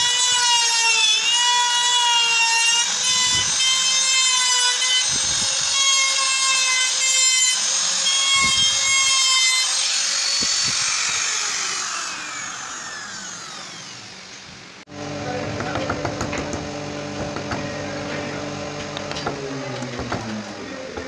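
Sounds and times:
router whining: 0:00.0 - 0:21.0
motor spinning down: 0:10.2 - 0:21.0.

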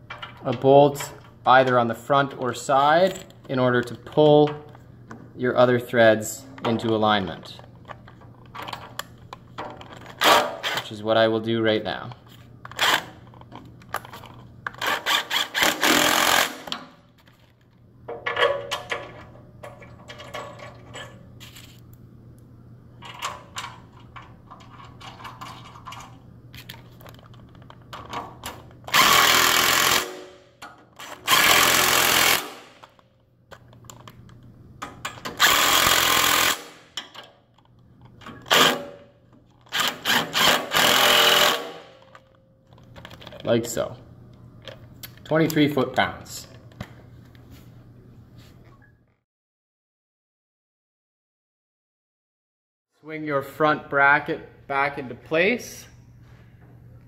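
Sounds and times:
torque gun driving bolts: 0:39.6 - 0:42.2.

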